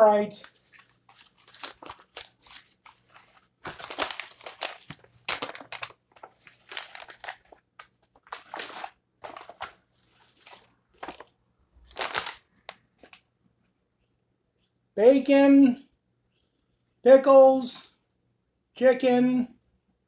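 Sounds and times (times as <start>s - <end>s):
paper wrapper crinkling: 0.3s - 13.3s.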